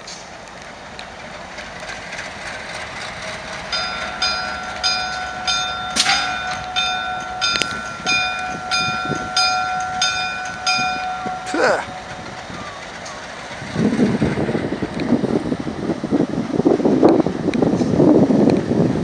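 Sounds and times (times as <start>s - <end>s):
diesel locomotive engine: 0.0s - 19.0s
locomotive bell ringing: 2.1s - 14.9s.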